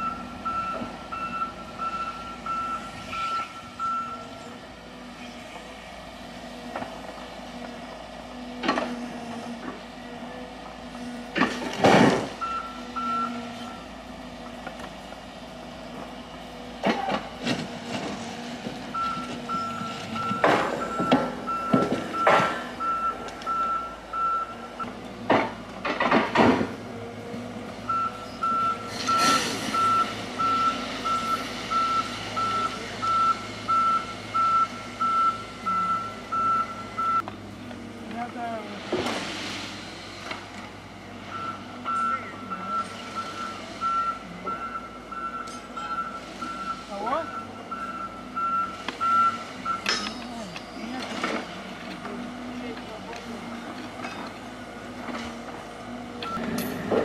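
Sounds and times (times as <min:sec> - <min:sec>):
reversing alarm beeping: 0:00.0 - 0:04.4, 0:12.4 - 0:13.9, 0:18.9 - 0:24.9, 0:27.9 - 0:37.2, 0:41.3 - 0:51.1, 0:56.2 - 0:56.5
excavator engine running: 0:00.0 - 0:57.0
steel rail clanking: 0:49.8 - 0:52.2, 0:52.8 - 0:57.0.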